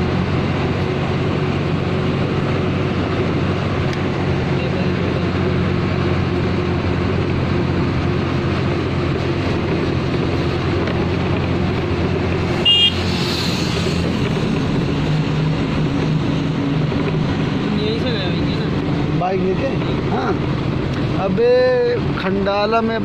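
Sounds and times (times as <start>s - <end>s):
road noise: 0.0s - 23.0s
vehicle engine running: 0.0s - 23.0s
short horn toot: 12.6s - 13.3s.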